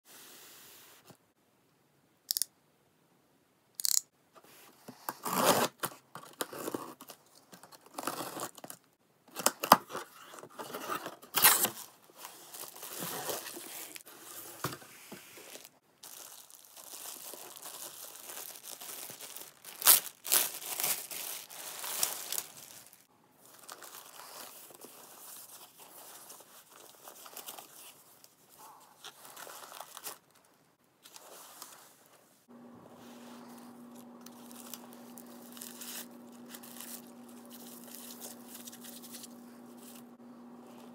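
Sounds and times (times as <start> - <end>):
plastic and foam tearing and crinkling: 5.2 - 8.8, 9.4 - 14.5, 15.4 - 27.9, 34.2 - 40.0
box cutter slitting packing tape: 11.3 - 11.8.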